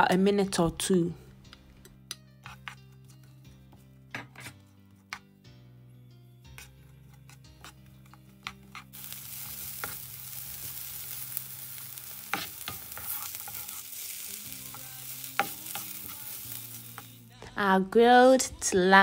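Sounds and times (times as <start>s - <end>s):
utensil tapping and scraping a pan: 2.4s - 5.3s, 6.5s - 10.0s, 12.2s - 13.8s
vegetables sizzling in a pan: 8.9s - 17.3s.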